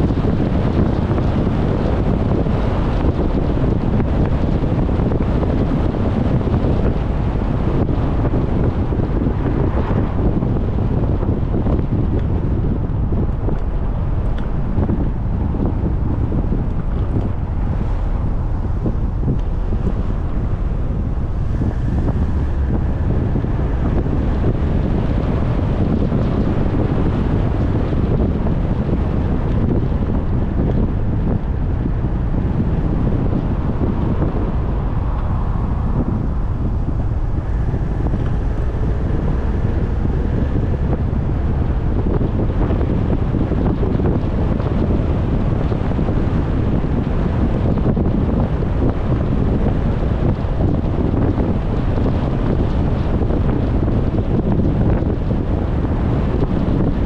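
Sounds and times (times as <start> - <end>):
car road and wind noise: 0.0 - 57.0.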